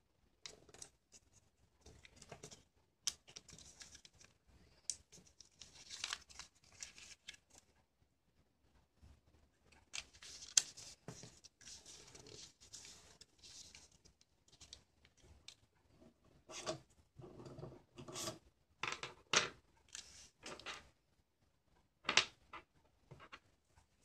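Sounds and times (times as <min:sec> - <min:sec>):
paper rustling while folded: 0:00.6 - 0:04.4, 0:05.0 - 0:07.7, 0:09.8 - 0:15.2.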